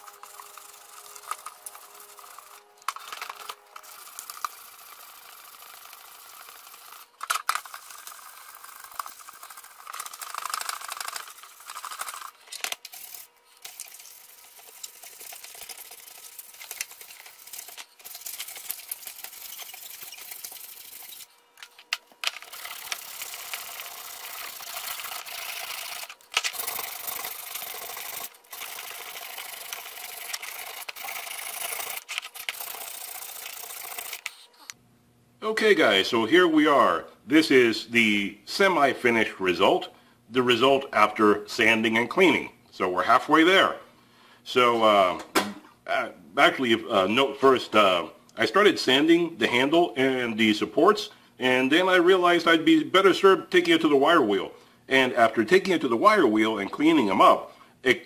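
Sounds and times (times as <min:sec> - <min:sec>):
sandpaper scratching on metal: 0:00.0 - 0:21.3, 0:22.5 - 0:34.5.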